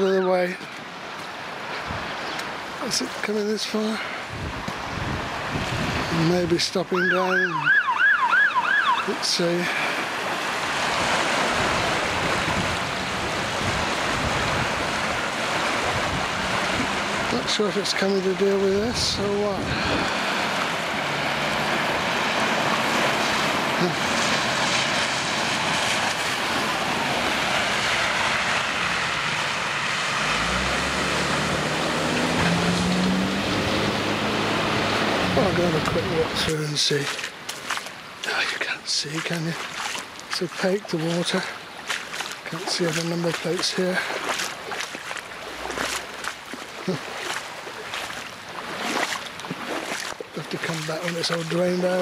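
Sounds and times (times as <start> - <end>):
river rushing: 0.0 - 52.0
diesel engine passing: 5.2 - 37.2
wheels throwing up water spray: 5.3 - 38.4, 39.4 - 52.0.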